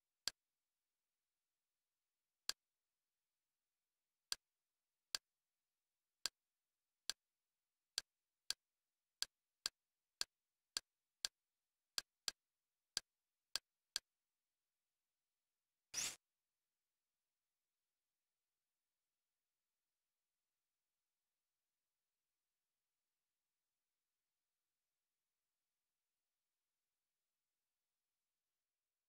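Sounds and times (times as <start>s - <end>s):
short sharp menu clicks: 16.0s - 16.2s.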